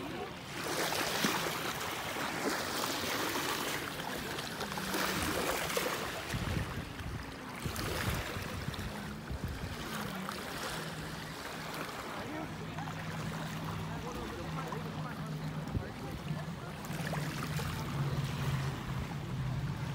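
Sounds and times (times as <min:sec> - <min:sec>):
waves washing over pebbles: 0:00.0 - 0:19.9.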